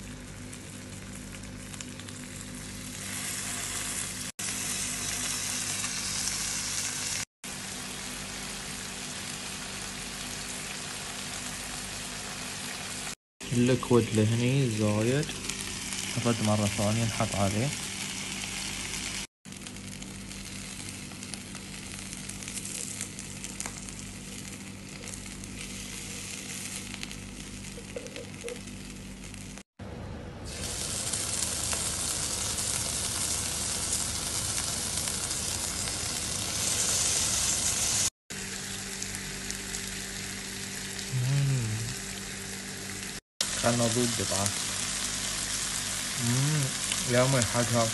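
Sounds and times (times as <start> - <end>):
chicken sizzling on a grill pan: 0.2 - 29.6, 30.5 - 41.0, 42.2 - 47.9.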